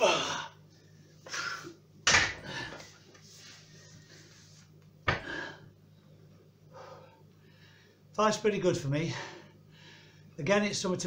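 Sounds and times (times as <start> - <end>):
dumbbells thudding on floor: 2.0 - 2.5, 5.0 - 5.4.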